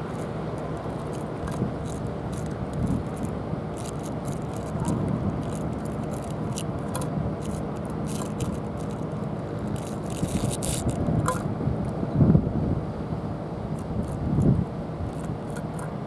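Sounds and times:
faint steady hum: 0.0s - 16.0s
small clicks and ticks: 0.1s - 12.0s.

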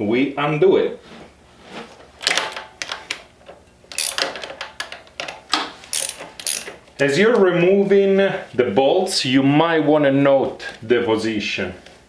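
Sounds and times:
ratcheting wrench clicking: 3.9s - 6.8s.

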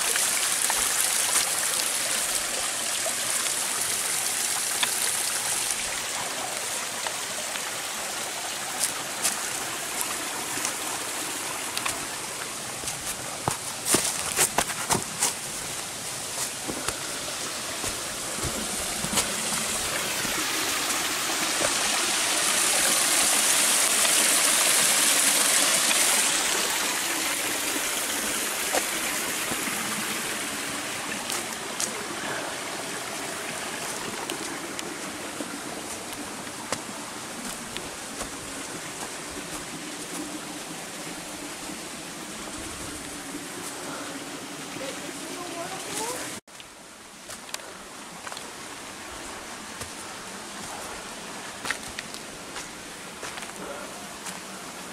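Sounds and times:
stream splashing over rocks: 0.0s - 54.9s
footsteps on rocky trail: 0.1s - 1.8s, 8.8s - 21.9s, 28.6s - 40.7s, 45.4s - 54.6s.

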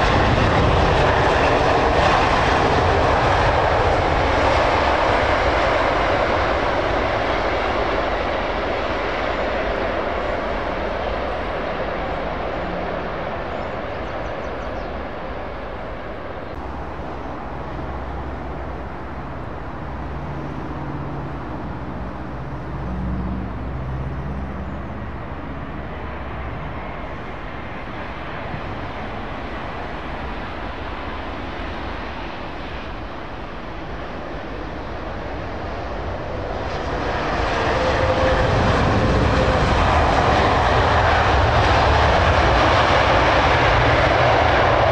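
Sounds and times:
jet engines rumbling: 0.0s - 44.9s.

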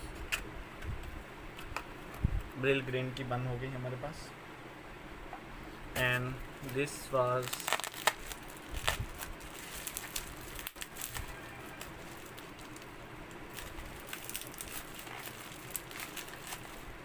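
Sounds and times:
bubble wrap crinkling: 6.6s - 17.0s.

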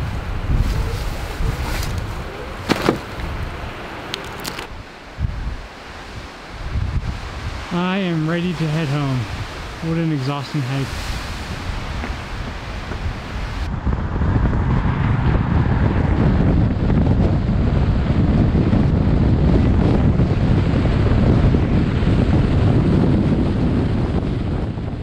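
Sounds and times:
road noise: 0.0s - 22.4s
wind buffeting microphone: 0.0s - 25.0s
soft outdoor hiss: 1.0s - 13.6s.

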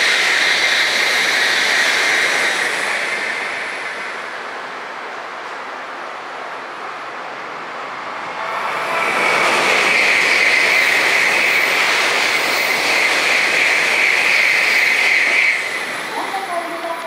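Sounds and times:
train wheels rushing on rail: 0.0s - 17.0s
high squeal: 8.2s - 16.3s.

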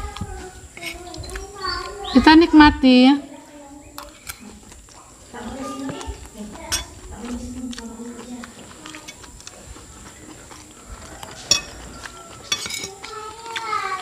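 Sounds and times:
cutlery clinking on ceramic plate: 11.3s - 13.2s.

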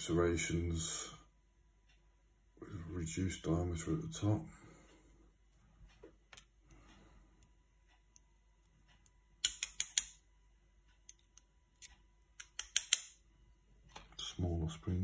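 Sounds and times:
small metal lock parts clicking: 9.4s - 10.2s, 11.1s - 13.2s.

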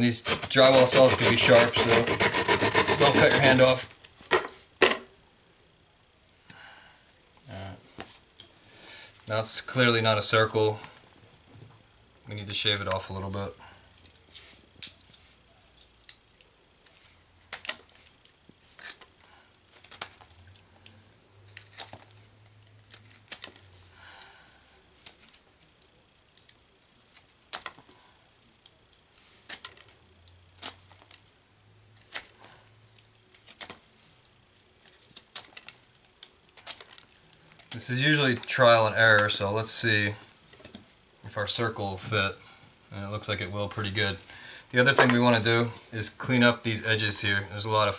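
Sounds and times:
knife scraping drywall: 0.0s - 3.9s.

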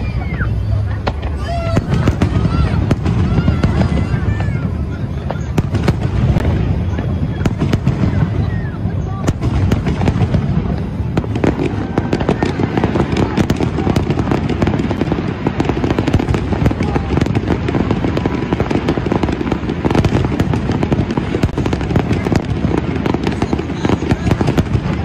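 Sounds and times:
fireworks bangs and crackling: 0.0s - 25.0s.

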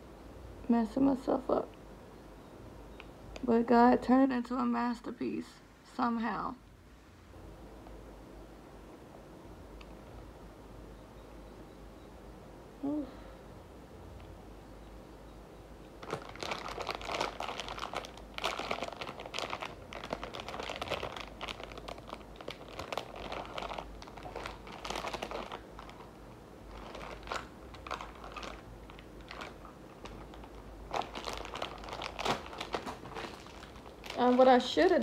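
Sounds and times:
packaging crinkling: 16.0s - 35.0s.

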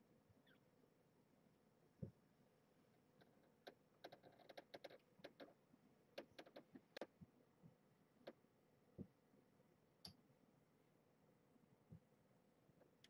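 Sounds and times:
faint clicks and light taps: 3.2s - 9.2s, 10.0s - 10.2s, 12.8s - 13.0s.

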